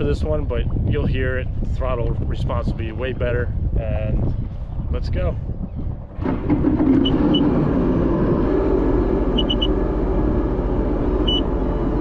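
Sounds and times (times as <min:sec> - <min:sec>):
watercraft engine running: 0:06.2 - 0:12.0
short high electronic beeps: 0:09.4 - 0:09.7, 0:11.2 - 0:11.4.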